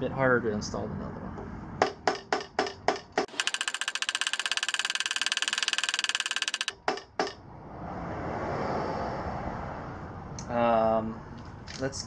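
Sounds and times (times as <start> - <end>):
high buzzing rattle: 3.2 - 6.8.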